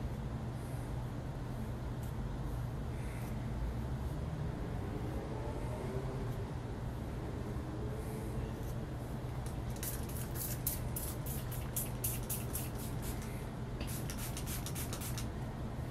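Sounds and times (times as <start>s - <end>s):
steady low hum: 0.0s - 15.9s
comb scratching through hair: 9.5s - 13.3s, 13.9s - 15.3s.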